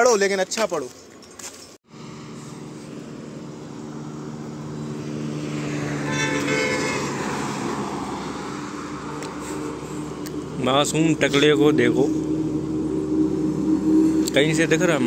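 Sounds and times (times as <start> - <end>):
vehicle passing by: 1.9 - 15.0
car horn honk: 4.3 - 9.7.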